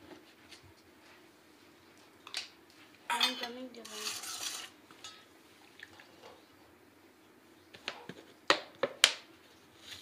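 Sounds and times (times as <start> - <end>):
steel bowls and utensils clinking: 3.1 - 5.3.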